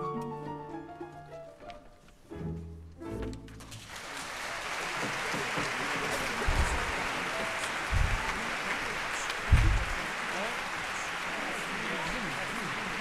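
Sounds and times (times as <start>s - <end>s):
audience applauding: 3.6s - 13.0s
low thumps: 7.9s - 8.3s, 9.5s - 10.0s.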